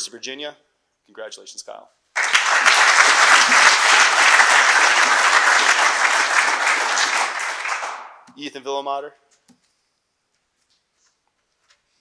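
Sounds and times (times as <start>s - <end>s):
audience applauding: 2.2s - 8.2s.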